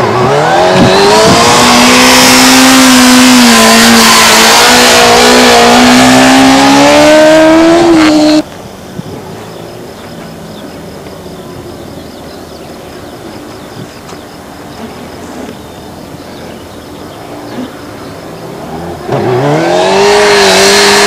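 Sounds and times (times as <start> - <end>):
motorcycle engine revving hard: 0.0 - 8.4, 18.3 - 21.0.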